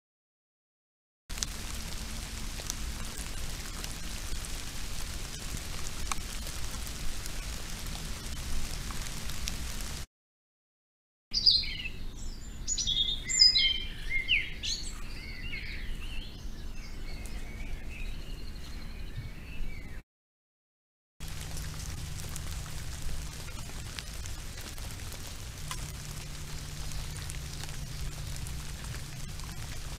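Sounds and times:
steady hiss: 1.3s - 10.0s, 21.2s - 29.9s
low electrical hum: 21.2s - 29.9s.

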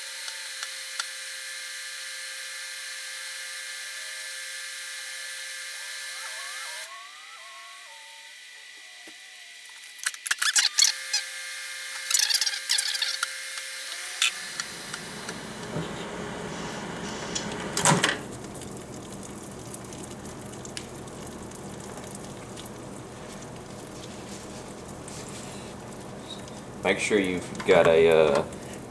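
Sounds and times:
microwave oven humming: 13.9s - 28.9s
microwave door and control clicks: 17.3s - 18.2s.

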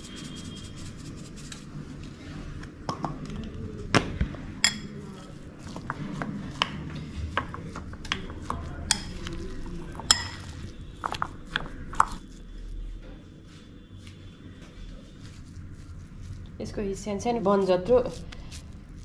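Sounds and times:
spoon clinking against bowl: 4.6s - 5.0s, 8.1s - 12.2s.

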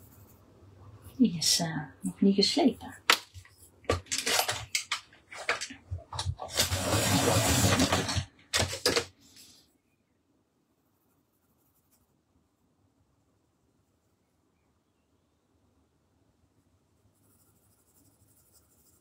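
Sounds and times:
handling clatter: 3.1s - 9.1s
pencil sharpener grinding: 6.4s - 8.2s.

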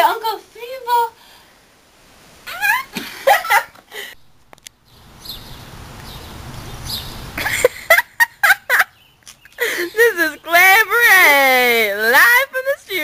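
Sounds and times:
girl laughing in short bursts: 2.4s - 4.2s, 7.4s - 8.9s
people laughing: 2.5s - 4.1s, 7.4s - 8.9s
steady rushing noise: 4.2s - 8.2s.

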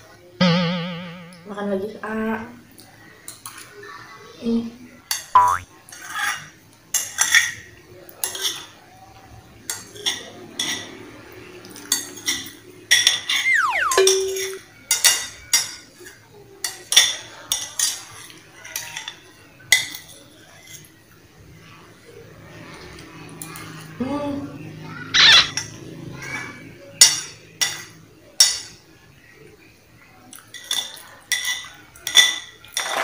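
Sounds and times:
short falling tone: 0.4s - 1.6s, 13.4s - 14.3s.

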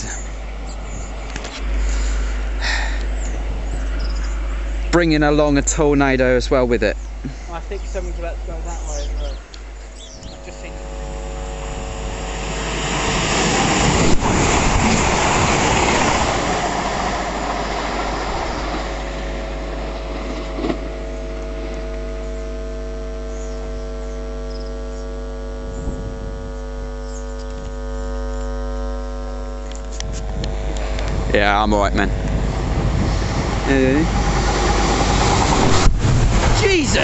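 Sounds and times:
train passing: 0.0s - 22.4s, 30.3s - 37.0s
steady tonal hum: 0.0s - 37.0s.

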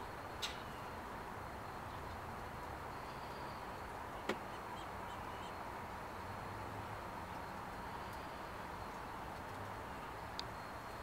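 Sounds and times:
outdoor background hiss: 0.0s - 11.0s.

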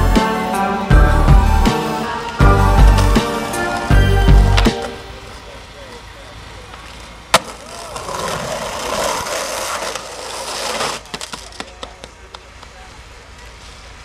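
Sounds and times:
skateboard clacks: 6.6s - 12.8s
skateboard scraping rough concrete: 6.7s - 12.2s.

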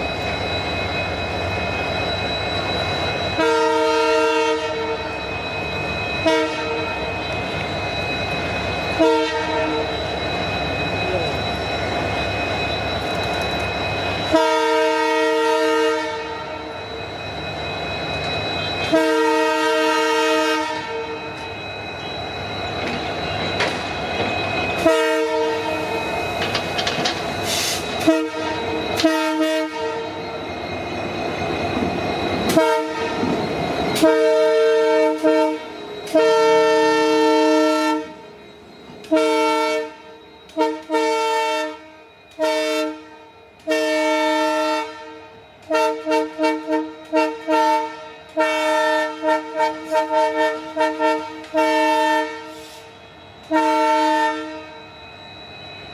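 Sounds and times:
locomotive rumbling along rails: 0.0s - 55.9s
locomotive air horn blasts: 3.4s - 5.1s, 6.2s - 6.9s, 9.0s - 9.9s, 14.3s - 16.7s, 18.8s - 21.2s, 24.8s - 25.9s, 27.5s - 30.1s, 32.5s - 33.2s, 34.0s - 38.2s, 39.1s - 54.8s.

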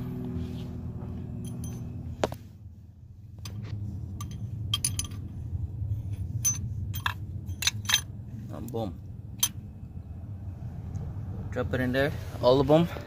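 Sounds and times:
low steady hum: 0.0s - 13.0s
metal pushrods clinking: 1.4s - 2.0s, 3.4s - 5.4s, 6.2s - 8.2s.

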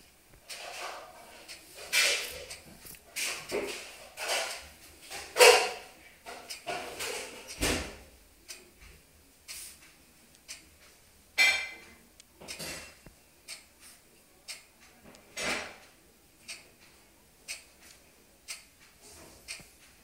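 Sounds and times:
clock ticking: 1.4s - 1.6s, 6.3s - 6.8s, 8.4s - 11.0s, 11.8s - 20.0s.

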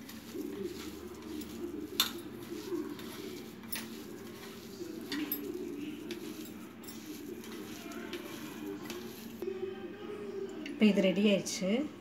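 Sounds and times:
hand squishing mashed potato: 0.0s - 9.4s.

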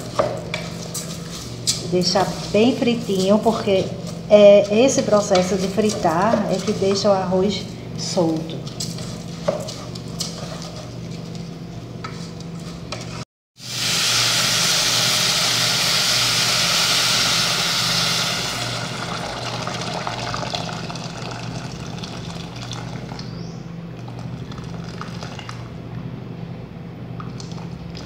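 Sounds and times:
wooden spoon scraping a pot: 0.6s - 7.6s, 8.6s - 11.4s
rice sizzling in oil: 13.6s - 19.5s
loud hissing of hot pot: 13.6s - 19.6s
water poured into a pot: 13.7s - 23.2s.

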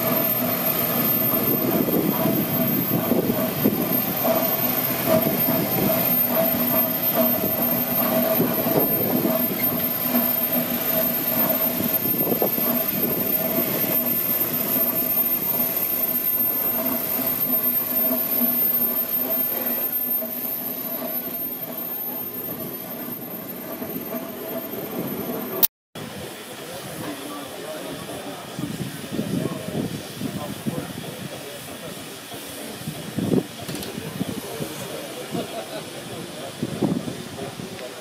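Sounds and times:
mechanical running noise: 0.0s - 25.7s
steady hum: 0.0s - 25.7s
steam engine hissing: 0.0s - 38.0s.

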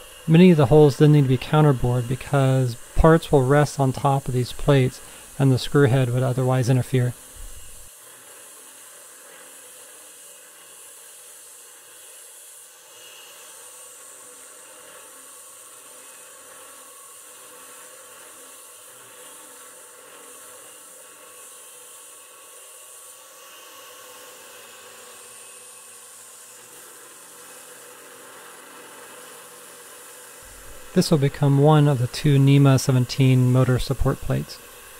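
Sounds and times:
compressed air hissing: 0.0s - 7.9s, 24.9s - 34.9s
milling machine cutting metal: 0.0s - 7.9s, 12.0s - 34.9s.

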